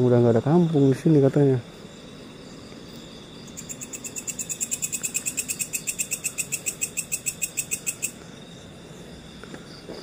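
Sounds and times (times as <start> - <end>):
crickets droning: 0.0 - 10.0
insect chirping pulses: 0.0 - 10.0.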